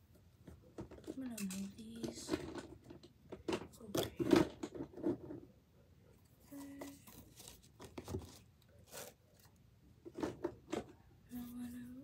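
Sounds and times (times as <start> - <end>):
plastic toys clattering: 0.4 - 5.5, 10.0 - 11.0.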